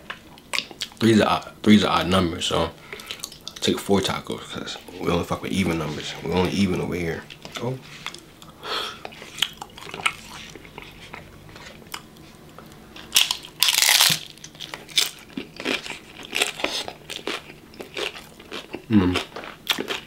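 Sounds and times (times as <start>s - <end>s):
chewing: 7.3s - 20.0s
taco shell crunching: 12.9s - 20.0s.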